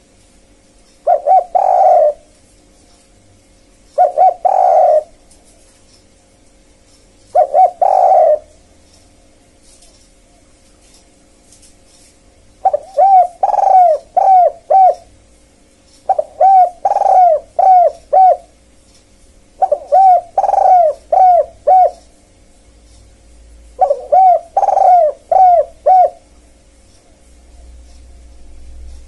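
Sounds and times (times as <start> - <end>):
dove cooing: 1.0 - 2.5, 3.9 - 5.6, 7.3 - 8.7, 12.6 - 15.2, 16.1 - 18.7, 19.5 - 22.2, 23.6 - 28.3.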